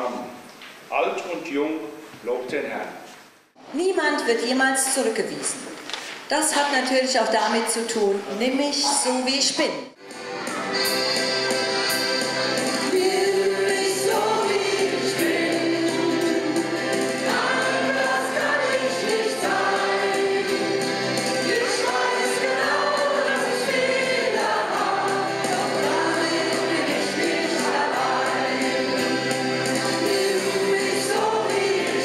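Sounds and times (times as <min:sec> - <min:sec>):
instrumental accompaniment: 0:10.0 - 0:32.0
group singing into microphones: 0:12.6 - 0:32.0.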